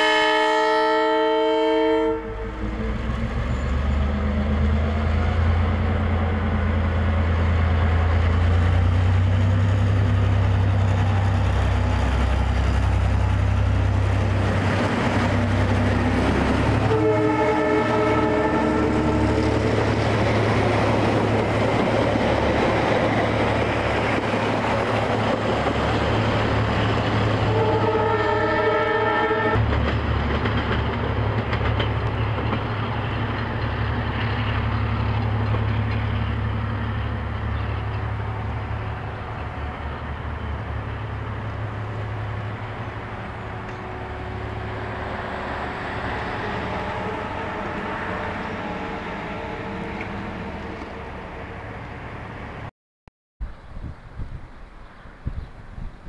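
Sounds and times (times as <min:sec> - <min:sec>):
locomotive air horn: 0:00.0 - 0:02.8, 0:16.7 - 0:19.6, 0:27.4 - 0:29.6, 0:43.4 - 0:51.3
train wheels rumbling on rails: 0:01.9 - 0:52.7.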